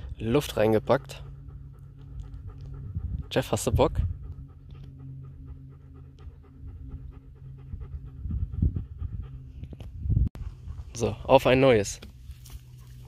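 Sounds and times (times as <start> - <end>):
dog panting: 0.0 - 11.6
low rumble: 0.0 - 13.0.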